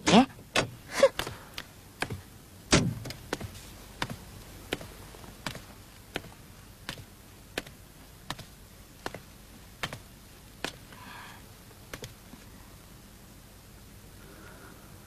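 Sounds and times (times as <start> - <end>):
footsteps on hard surface: 3.0 - 10.8.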